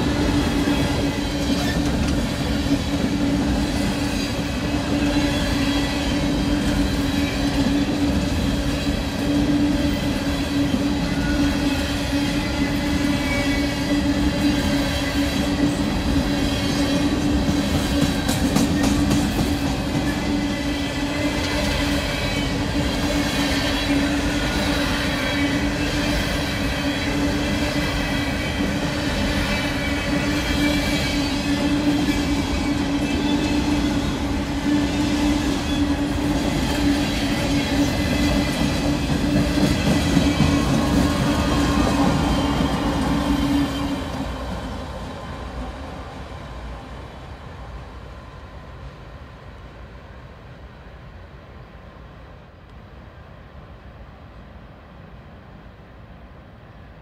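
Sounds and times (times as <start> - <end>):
clicks of train wheels: 0.0 - 44.8
train wheels rumbling on rail: 0.0 - 57.0.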